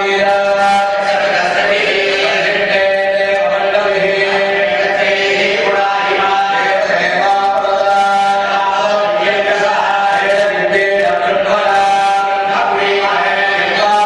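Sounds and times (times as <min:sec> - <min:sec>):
group chanting in long tones: 0:00.0 - 0:14.0.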